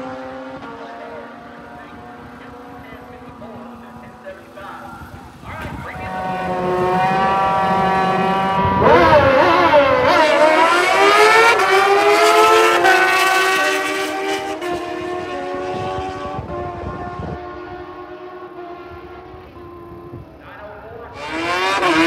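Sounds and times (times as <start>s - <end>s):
motorcycle engines revving hard: 0.0s - 22.0s.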